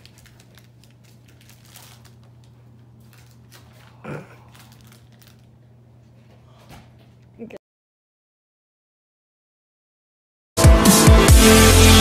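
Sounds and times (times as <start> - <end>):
plastic wrapping crinkling: 0.0 - 6.2.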